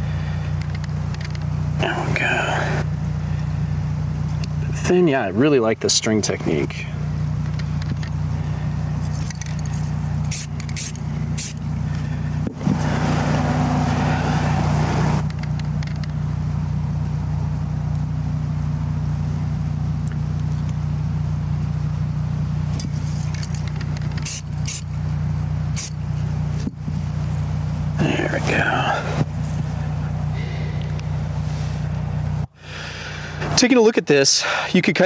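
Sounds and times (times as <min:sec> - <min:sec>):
steady low hum: 0:00.0 - 0:35.0
aerosol spray can spraying: 0:10.3 - 0:11.6, 0:24.1 - 0:24.9, 0:25.7 - 0:26.0.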